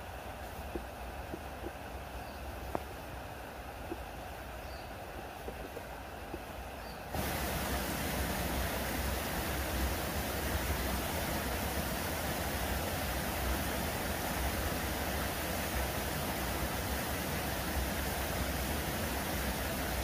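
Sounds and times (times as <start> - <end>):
waterfall rushing: 7.1 - 20.0.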